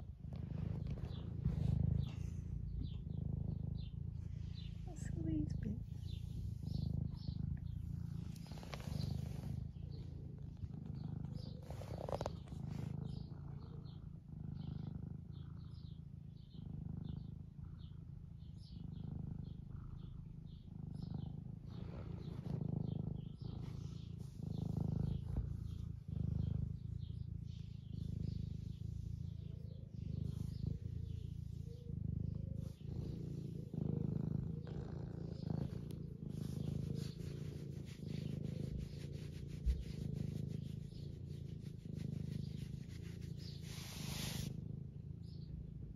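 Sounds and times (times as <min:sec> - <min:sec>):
cat purring: 0:00.0 - 0:45.9.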